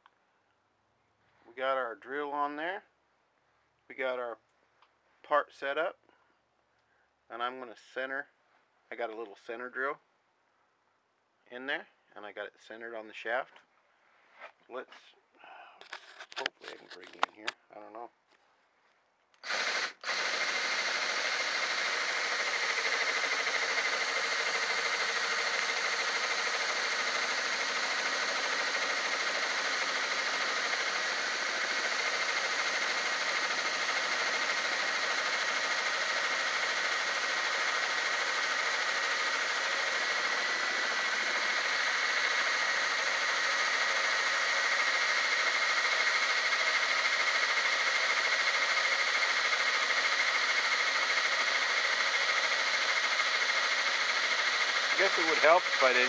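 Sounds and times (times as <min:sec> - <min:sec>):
drill whining: 0:19.4 - 0:56.0.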